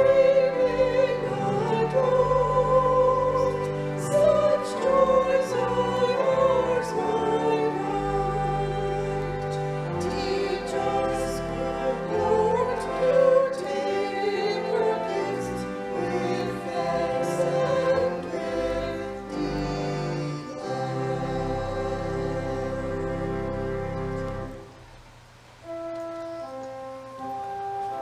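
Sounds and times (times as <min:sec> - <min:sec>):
women singing together: 0:00.0 - 0:19.9
church organ: 0:00.0 - 0:25.0, 0:25.6 - 0:28.0.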